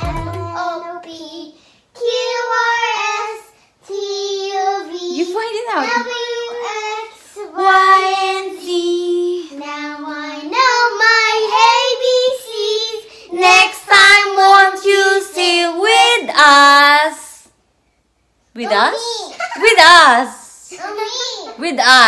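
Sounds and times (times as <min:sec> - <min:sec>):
children singing: 0:00.0 - 0:01.4, 0:06.2 - 0:15.3.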